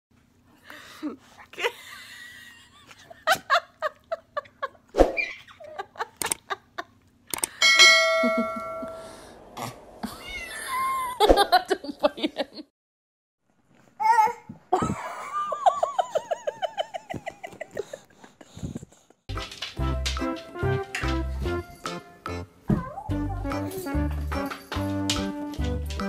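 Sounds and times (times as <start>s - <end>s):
baby squealing and laughing: 5.0s - 5.6s
bell-like chime: 7.6s - 9.2s.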